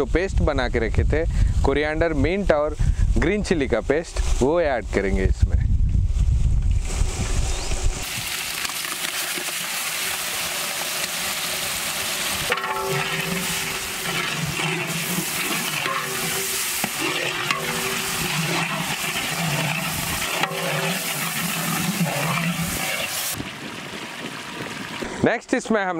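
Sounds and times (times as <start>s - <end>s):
paste sizzling in oil: 8.0s - 23.4s
metal ladle scraping pot: 12.4s - 23.4s.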